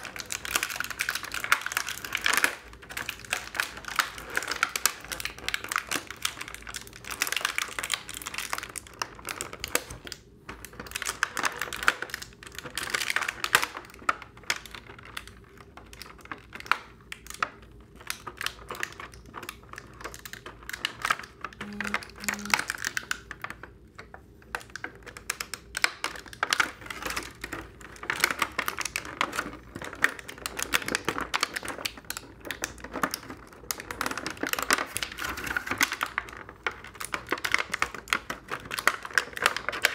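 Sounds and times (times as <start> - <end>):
plastic packaging crinkling: 0.0 - 23.7, 24.6 - 39.9
short low tones: 21.6 - 22.7.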